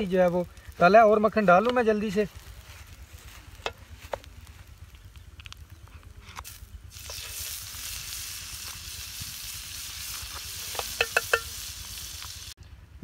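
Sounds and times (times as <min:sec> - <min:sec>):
butter sizzling in frying pan: 0:06.4 - 0:12.6.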